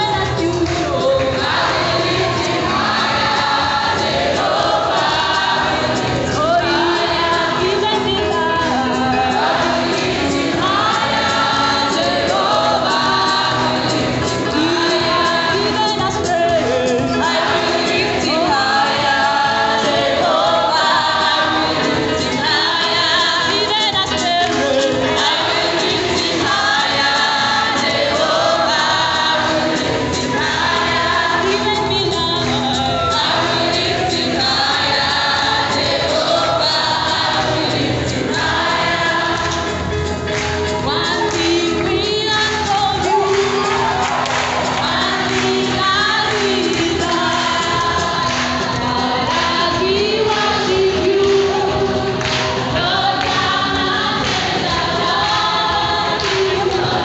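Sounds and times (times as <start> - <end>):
choir singing a hymn: 0.6 - 57.0.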